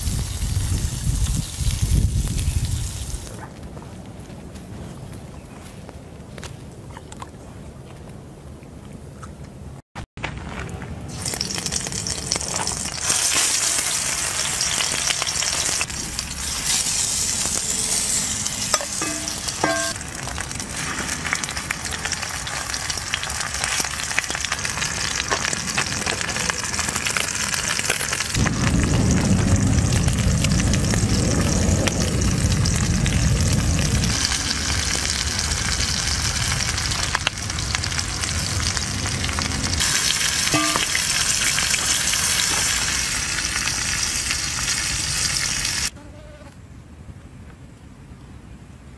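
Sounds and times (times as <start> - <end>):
steaks sizzling in pan: 11.2 - 20.0, 34.1 - 45.9
deep rumble: 14.4 - 27.3, 28.2 - 42.4.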